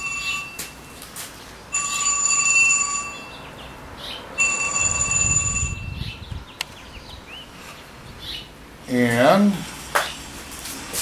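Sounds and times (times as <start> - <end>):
electronic telephone ringing: 0.0 - 1.0, 1.7 - 3.4, 4.4 - 5.9.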